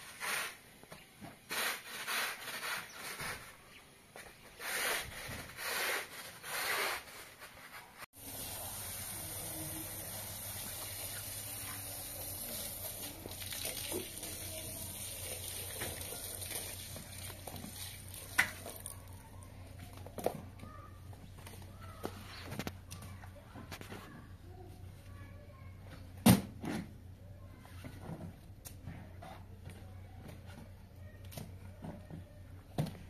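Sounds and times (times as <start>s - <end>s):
water rushing from hose: 8.2s - 19.3s.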